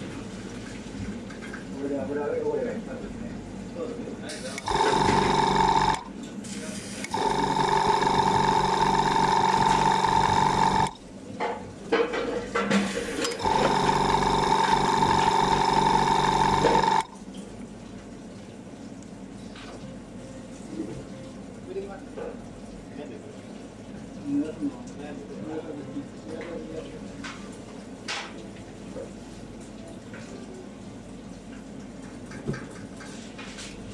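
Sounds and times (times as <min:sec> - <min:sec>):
kitchen hum: 0:04.2 - 0:17.6
electric spray gun buzzing: 0:04.3 - 0:06.1, 0:07.0 - 0:11.0, 0:13.2 - 0:17.1.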